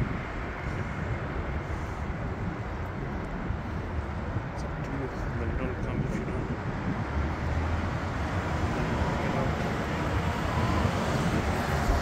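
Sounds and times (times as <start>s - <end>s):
traffic hum: 0.0s - 12.0s
bus passing close: 6.2s - 12.0s.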